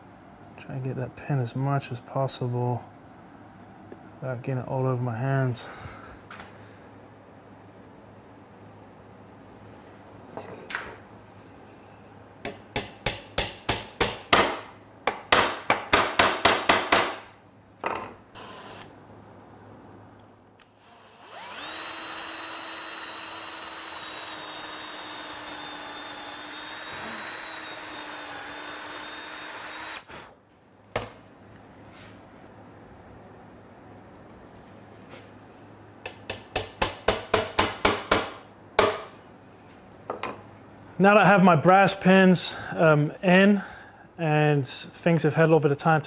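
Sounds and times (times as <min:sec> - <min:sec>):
cordless drill drilling into wood: 0:18.4 - 0:18.9, 0:20.7 - 0:30.1.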